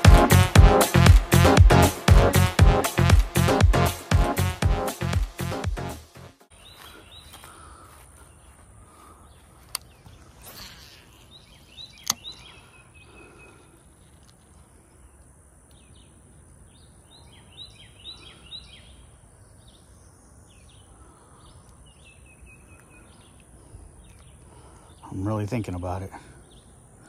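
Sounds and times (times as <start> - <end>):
small birds chirping: 6.5 - 27.0
sharp click: 12.0 - 12.4.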